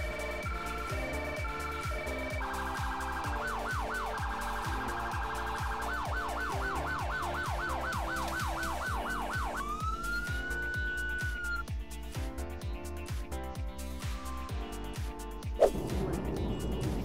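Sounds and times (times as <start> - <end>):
police car siren: 0.0 - 11.6.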